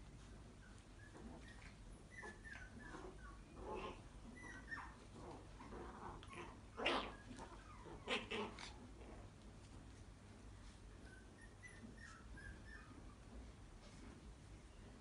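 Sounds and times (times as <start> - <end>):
dogs yipping and whimpering: 0.3 - 8.8, 11.0 - 13.5.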